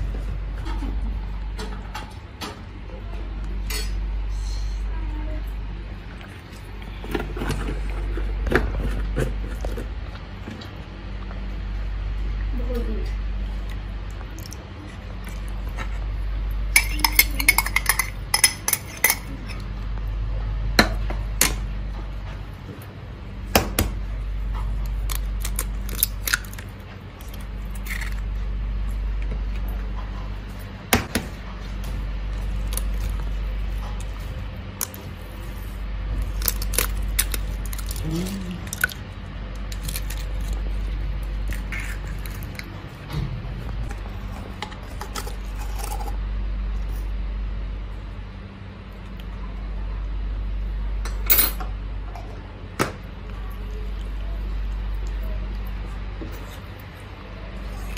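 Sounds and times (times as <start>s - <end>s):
low hum: 0.0s - 57.9s
utensils clinking against dishes: 3.6s - 4.7s, 16.7s - 19.6s.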